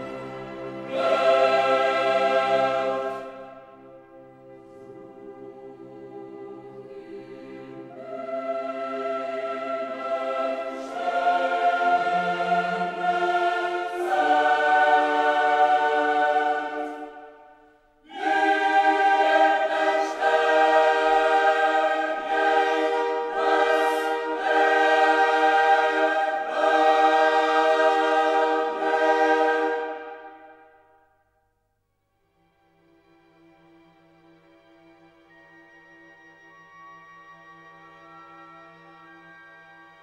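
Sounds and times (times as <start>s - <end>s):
choir singing held chords: 0.0s - 31.2s.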